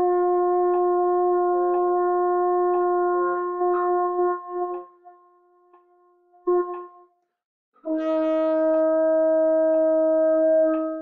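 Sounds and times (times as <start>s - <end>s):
metronome ticking: 0.3s - 5.0s
french horn long tone: 7.9s - 11.0s.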